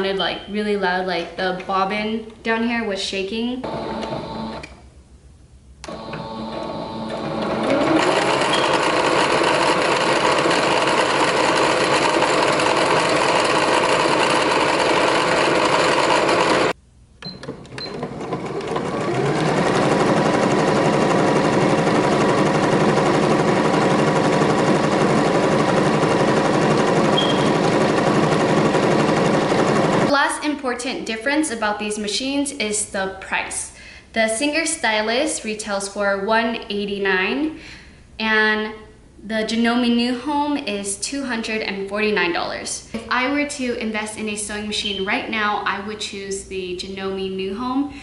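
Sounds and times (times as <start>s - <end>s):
sewing machine stitching smoothly: 3.6s - 4.6s, 5.9s - 16.8s, 17.7s - 30.1s
sewing machine stitching fast: 6.0s - 16.8s, 17.8s - 30.2s.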